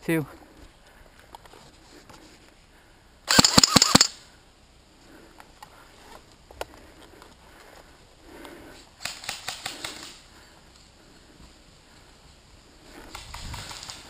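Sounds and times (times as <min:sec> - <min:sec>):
airsoft rifle firing burst: 0:03.3 - 0:04.2.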